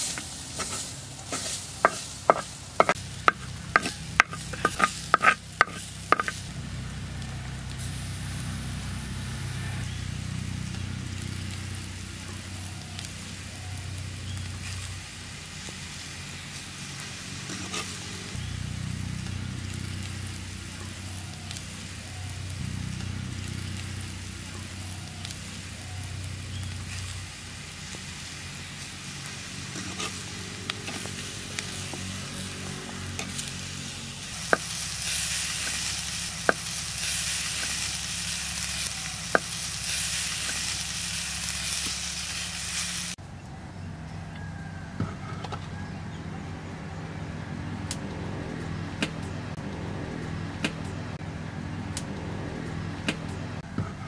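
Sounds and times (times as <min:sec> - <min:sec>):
spoon stirring in clay pot: 0:00.2 - 0:06.4
steady low rumble: 0:00.3 - 0:15.1, 0:18.2 - 0:29.4, 0:46.2 - 0:53.7.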